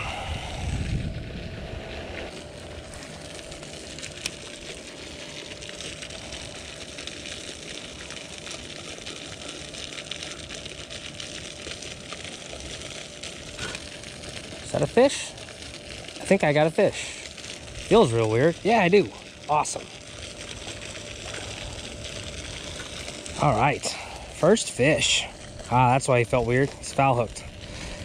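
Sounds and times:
wind blowing over microphone: 0.0 - 2.3.

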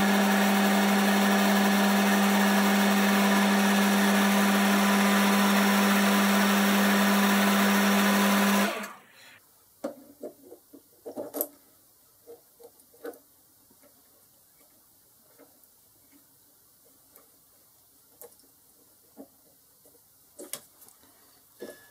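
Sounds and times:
lathe motor hum: 0.0 - 9.4.

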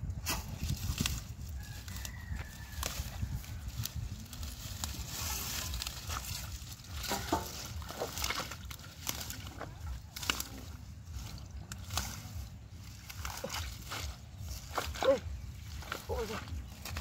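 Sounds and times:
plants crackling and rustling: 0.0 - 17.0
hands squelching in wet mud: 2.6 - 17.0
muddy water sloshing: 3.2 - 17.0.

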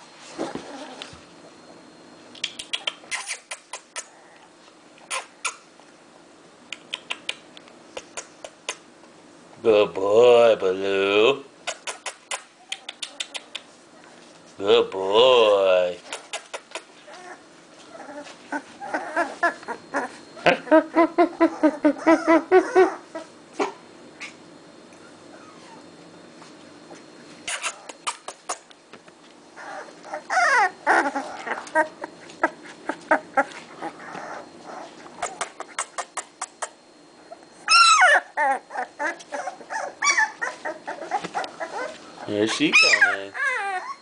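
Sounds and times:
puppies crying: 17.0 - 23.4, 25.0 - 25.9, 29.5 - 36.3, 37.3 - 44.0.

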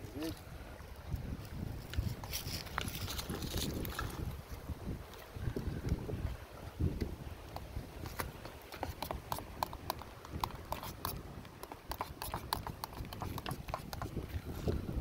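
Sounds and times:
spoon scraping a cook pot: 8.9 - 14.2.

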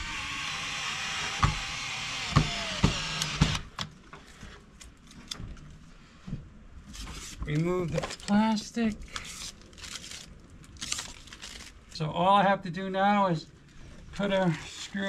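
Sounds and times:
cordless drill whining: 0.0 - 3.8.

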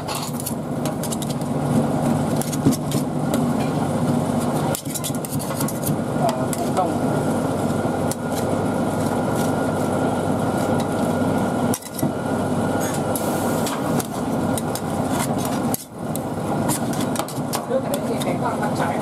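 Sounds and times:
metal spatulas chopping and scraping: 0.0 - 1.4, 4.6 - 6.8
steady low hum: 0.0 - 19.0.

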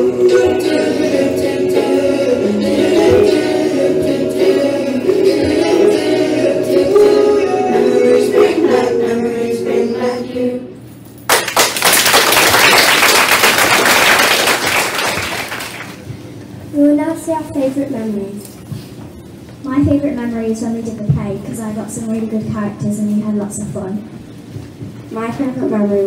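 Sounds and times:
group singing: 0.0 - 10.8
applause: 11.3 - 16.0.

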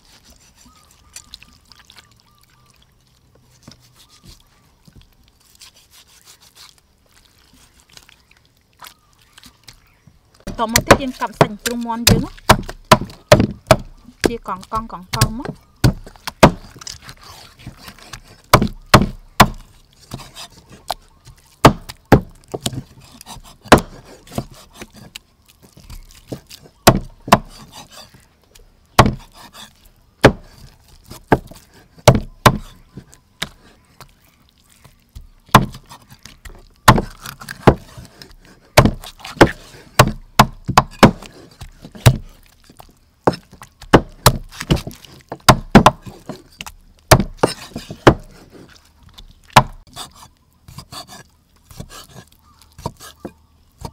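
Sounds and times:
cleaver chopping on wooden board: 10.5 - 17.0, 18.0 - 20.5, 21.6 - 25.0, 26.3 - 28.0, 29.0 - 32.8, 35.5 - 35.9, 36.9 - 38.1, 38.8 - 42.3, 43.3 - 46.4, 47.1 - 48.4, 49.5 - 49.8.

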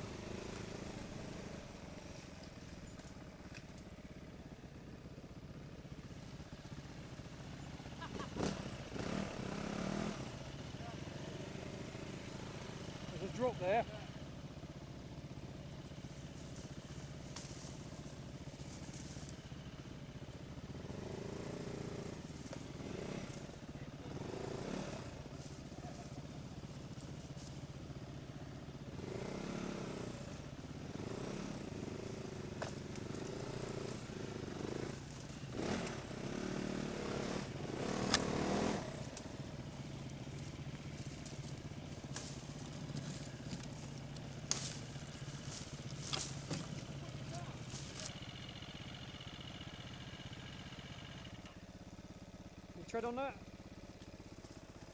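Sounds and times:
motorcycle engine revving: 0.0 - 54.9
twigs and leaves crackling: 16.0 - 19.4, 38.0 - 48.3.

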